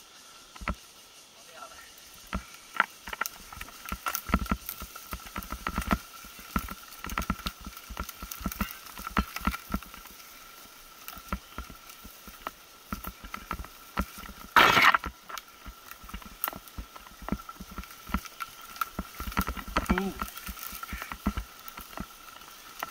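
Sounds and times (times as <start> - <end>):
bike clattering over bumps: 2.3 - 10.4, 11.1 - 22.9.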